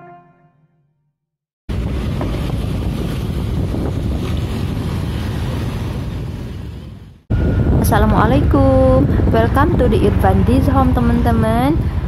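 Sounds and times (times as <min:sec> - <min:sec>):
surrounding traffic: 0:01.7 - 0:12.0
wind buffeting microphone: 0:01.7 - 0:12.0
motorcycle rumble: 0:07.3 - 0:12.0.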